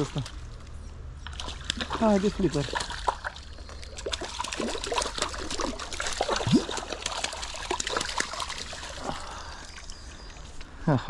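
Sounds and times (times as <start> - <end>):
stream trickling: 0.0 - 11.0
fish splashing at surface: 1.3 - 9.9.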